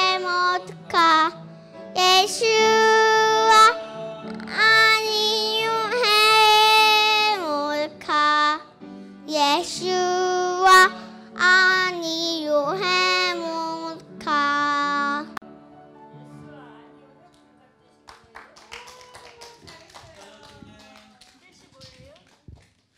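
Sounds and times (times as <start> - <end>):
girl singing into microphone: 0.0 - 3.8, 4.4 - 8.7, 9.3 - 15.4.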